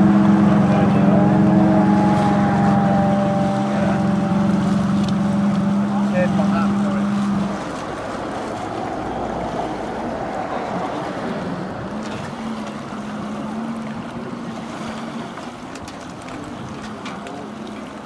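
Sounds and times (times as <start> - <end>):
boat engine idling: 0.0 - 18.0
water lapping on shore: 0.0 - 18.0
wind: 0.0 - 18.0.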